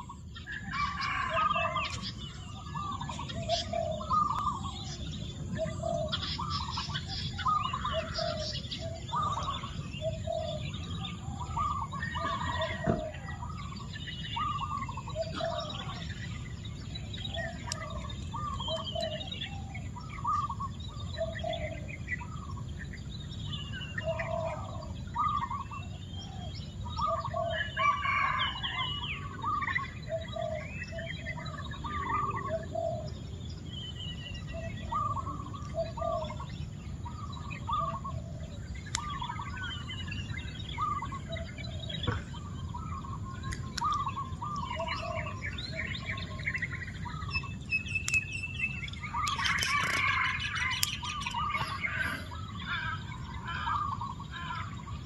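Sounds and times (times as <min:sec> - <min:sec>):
birds calling: 0:00.0 - 0:55.0
high bird chirps: 0:34.1 - 0:55.0.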